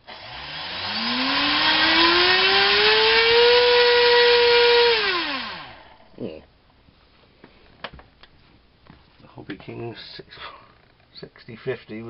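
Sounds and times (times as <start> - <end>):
electric motor propeller whine: 0.0 - 6.1.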